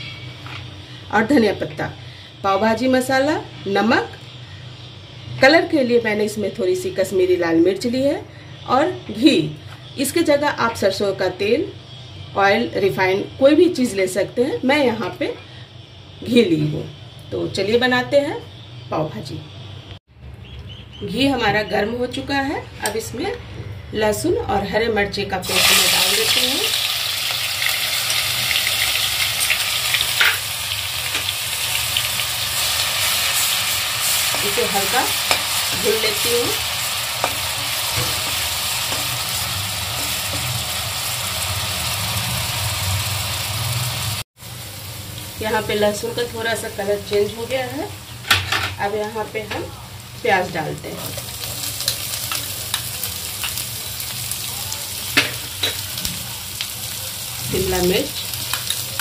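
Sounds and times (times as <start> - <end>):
paste sizzling in hot oil: 25.4 - 48.2, 50.0 - 59.0
metal utensils clicking on pan: 55.1 - 55.9.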